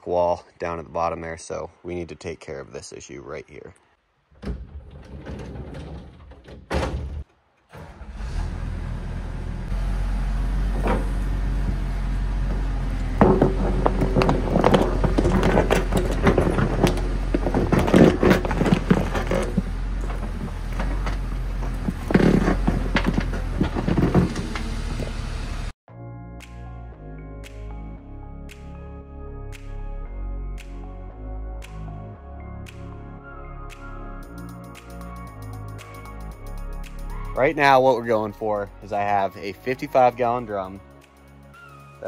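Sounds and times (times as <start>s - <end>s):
bucket clanking and scraping: 4.4s - 7.2s, 12.4s - 25.2s.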